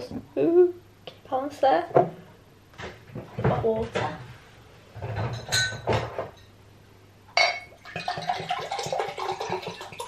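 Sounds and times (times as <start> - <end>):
drinking glass clinking: 7.4 - 8.3
water pouring into a glass: 7.7 - 10.0.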